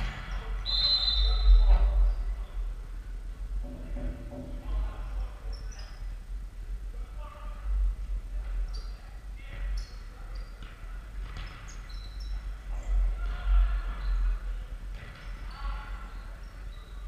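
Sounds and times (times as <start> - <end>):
trainers squeaking on floor: 11.4 - 12.6.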